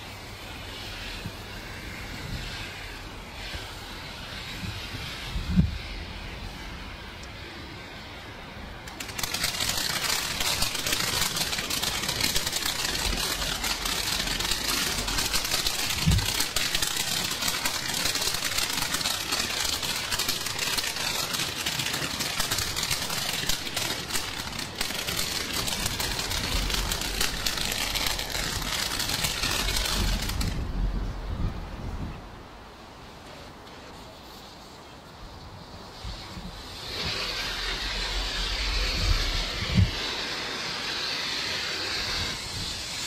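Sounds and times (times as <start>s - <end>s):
firework fountain hissing sparks: 0.0s - 31.8s, 32.5s - 43.0s
firework crackling: 0.0s - 32.1s, 32.7s - 43.0s.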